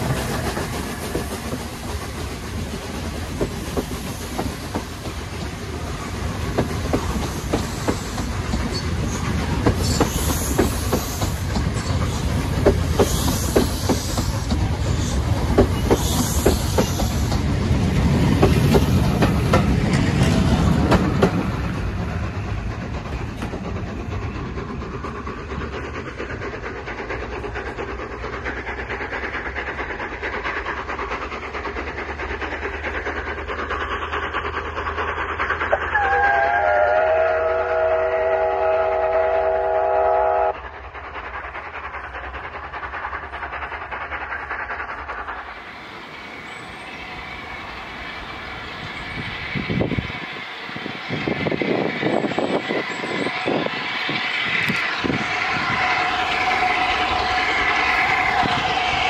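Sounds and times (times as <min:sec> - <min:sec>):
train coaches rumbling past: 0:00.0 - 0:59.0
steam locomotive whistle: 0:35.8 - 0:40.6.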